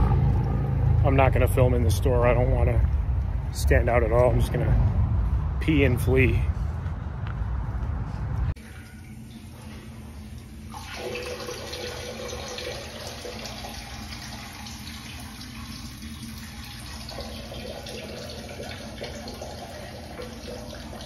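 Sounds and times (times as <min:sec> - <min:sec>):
running water: 0:08.6 - 0:21.0.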